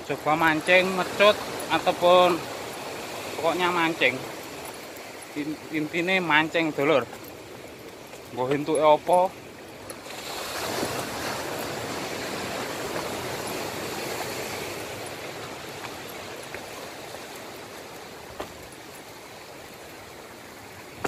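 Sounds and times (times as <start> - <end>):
surf on rocky shore: 0.0 - 21.0.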